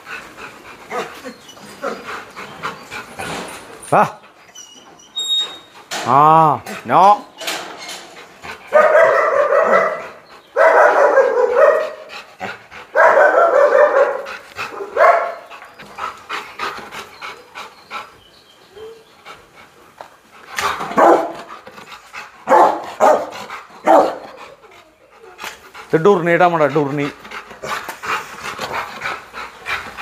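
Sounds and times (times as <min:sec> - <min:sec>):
dog barking: 0:08.7 - 0:12.1, 0:12.9 - 0:15.4, 0:21.0 - 0:21.4, 0:22.5 - 0:24.2.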